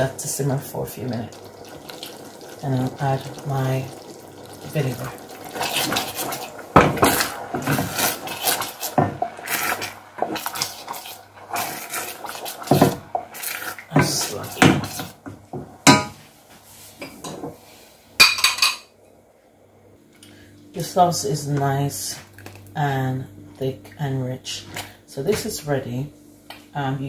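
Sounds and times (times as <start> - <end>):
wooden spoon scraping saucepan: 5.6 - 15.2.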